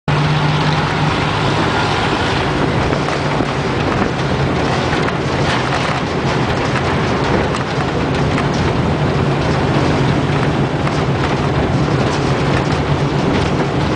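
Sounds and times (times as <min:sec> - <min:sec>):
truck engine running: 0:00.1 - 0:13.9
wind and road noise: 0:00.1 - 0:13.9.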